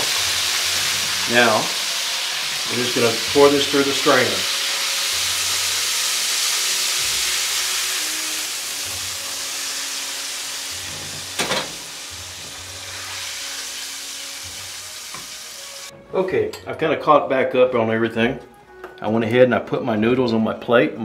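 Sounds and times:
hot oil sizzling: 0.0 - 15.9.

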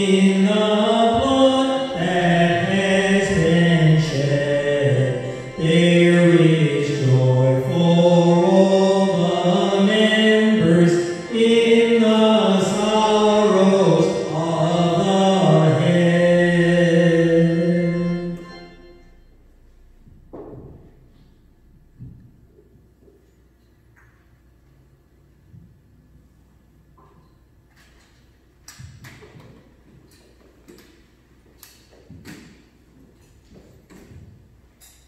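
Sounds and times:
man singing a hymn: 0.0 - 19.0.

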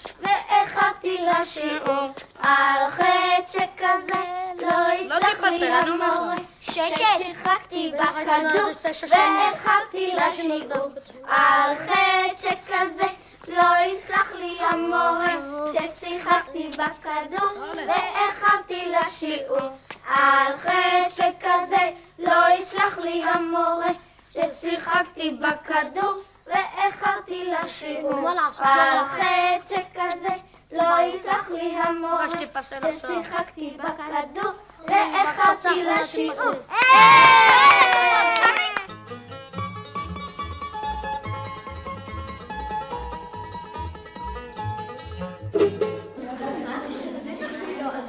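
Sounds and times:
children singing: 0.2 - 36.7, 46.2 - 48.0.

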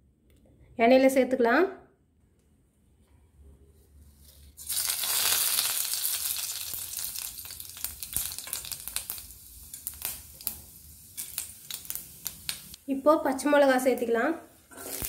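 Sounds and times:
spices sizzling in hot oil: 4.3 - 15.0.

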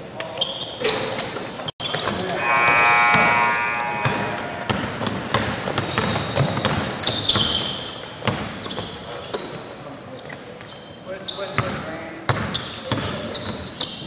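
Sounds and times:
short high squeaks: 2.0 - 4.8
buzzer tone: 2.1 - 4.9.

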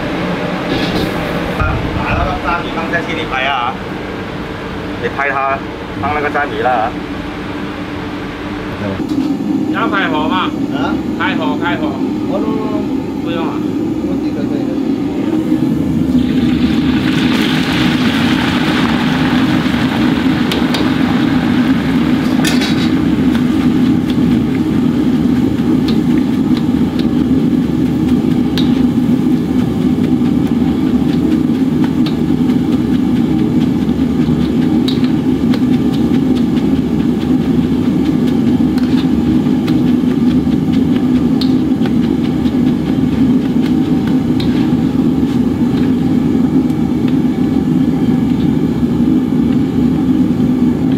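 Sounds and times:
gas burner roaring: 0.0 - 50.9
oil sizzling: 15.9 - 47.0.

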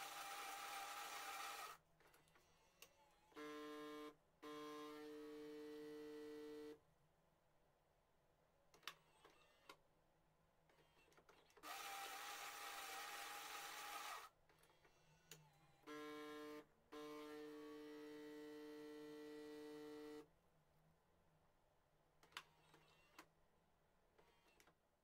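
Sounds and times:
coffee machine hissing whir: 0.0 - 1.7
coffee machine buzzing hum: 0.0 - 1.8.

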